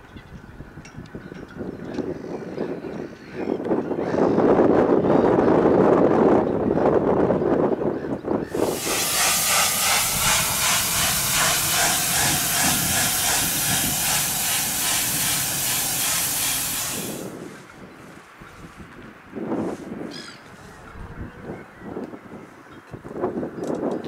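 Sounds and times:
pressure washer spraying hiss: 8.5s - 17.4s.

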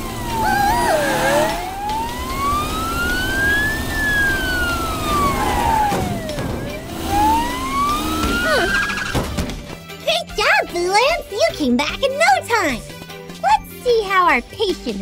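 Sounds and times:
cartoon siren wailing: 0.0s - 9.1s.

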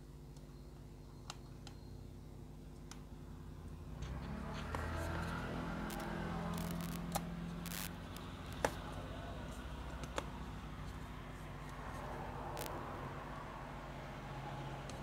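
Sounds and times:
steady low hum: 0.0s - 15.0s
sharp clicks: 5.9s - 8.8s, 12.6s - 12.8s.

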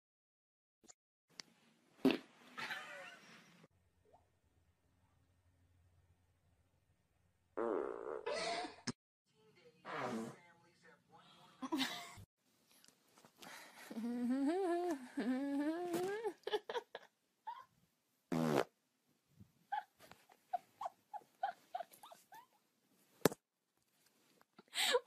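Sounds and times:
wavering pitched fart: 7.6s - 8.4s, 9.9s - 10.4s, 18.3s - 18.7s.

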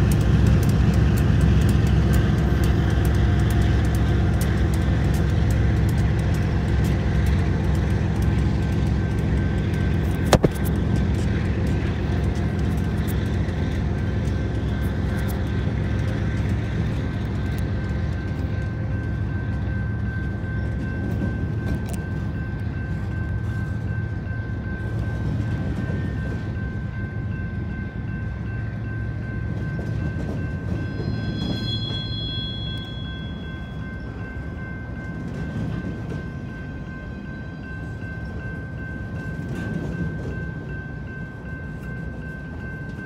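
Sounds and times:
freight train rumbling past: 0.0s - 43.0s
thin high tone: 30.8s - 34.5s.

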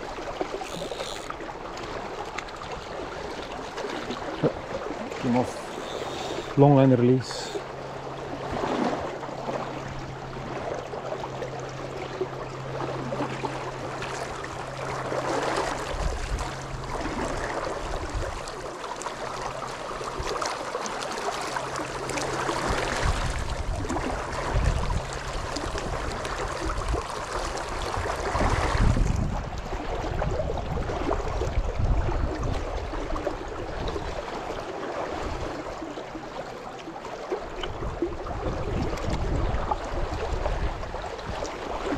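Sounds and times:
river water rushing and splashing: 0.0s - 41.9s
wind noise on microphone: 15.8s - 16.6s, 22.6s - 26.2s, 27.8s - 33.0s, 37.7s - 41.9s.

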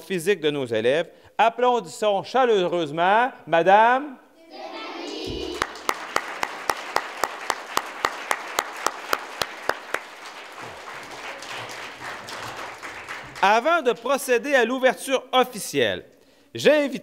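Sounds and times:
close sharp hand claps: 5.4s - 13.7s
audience applauding: 5.4s - 14.0s.

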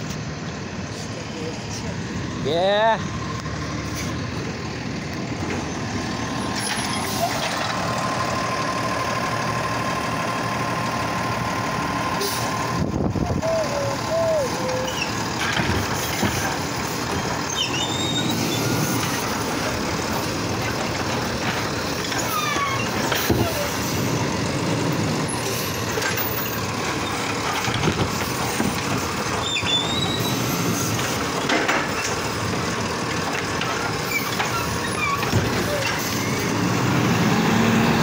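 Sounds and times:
garbage truck engine and hydraulics: 0.0s - 38.0s
hydraulic arm squeals: 13.4s - 15.2s, 17.2s - 19.4s, 22.0s - 24.1s, 29.4s - 31.0s, 34.0s - 36.6s.

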